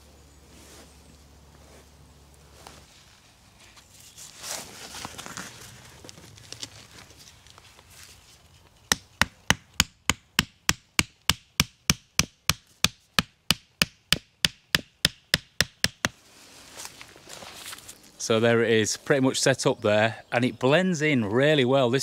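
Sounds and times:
tent peg being hammered: 8.9 - 16.2.

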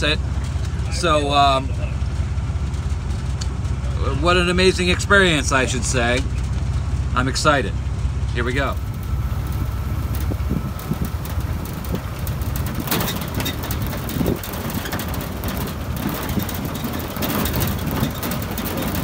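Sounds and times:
vehicle engine and road rumble: 0.0 - 19.0
knocks and rattles: 8.7 - 19.0
wind buffeting microphone: 8.8 - 19.0.

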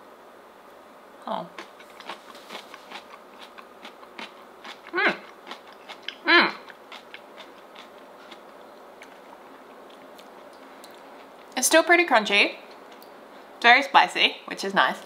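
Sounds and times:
crunchy chewing: 1.5 - 11.6
person humming mm: 6.2 - 6.6.

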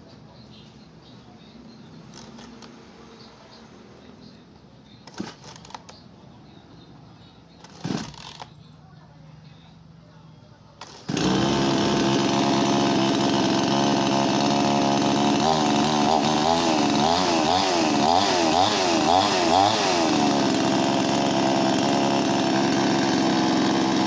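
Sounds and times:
chainsaw idling: 2.1 - 2.7, 5.0 - 5.9, 7.6 - 8.5, 10.8 - 24.0.

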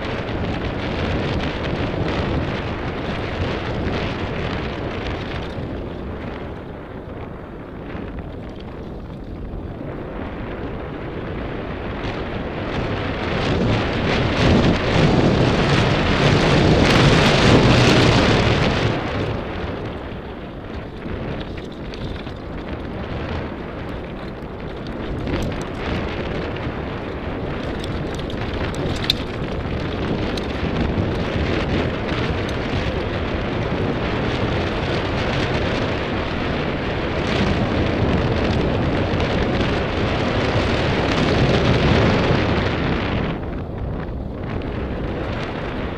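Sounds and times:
bike knocking and rattling: 0.0 - 45.9
wind rushing over microphone: 0.0 - 45.9
tyres rolling over gravel: 12.8 - 43.3.

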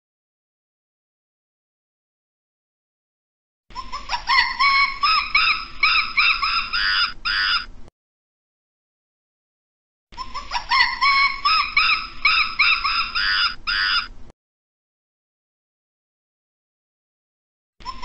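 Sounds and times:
monkey chirping calls: 3.7 - 7.7, 10.2 - 14.2, 17.8 - 18.0.

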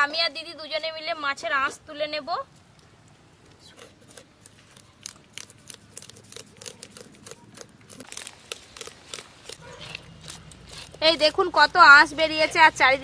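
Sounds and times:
knife scraping fish scales: 3.6 - 11.6.

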